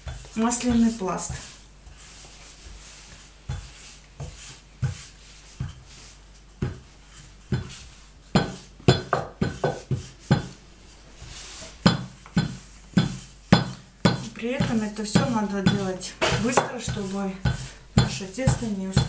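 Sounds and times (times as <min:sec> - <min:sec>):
rolling pin knocking on table: 0:08.4 - 0:10.6, 0:11.8 - 0:19.0.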